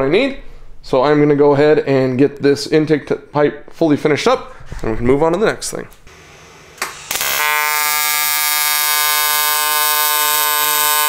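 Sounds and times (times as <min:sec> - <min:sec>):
welding arc buzzing: 0:06.1 - 0:11.0
welder click: 0:06.7 - 0:11.0.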